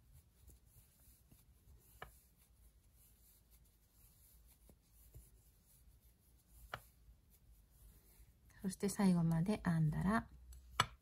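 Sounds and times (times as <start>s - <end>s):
yarn rubbing on crochet hook: 0.0s - 8.4s.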